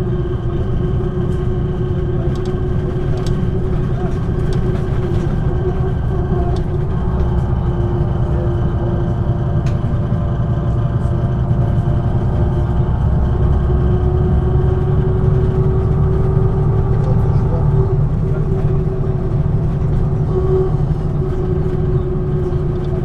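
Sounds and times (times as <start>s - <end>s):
bus diesel engine droning: 0.0s - 23.0s
steady hum: 0.2s - 23.0s.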